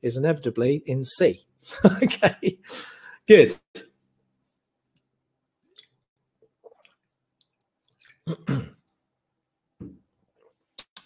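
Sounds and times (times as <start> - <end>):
man drinking and swallowing: 5.7 - 8.8.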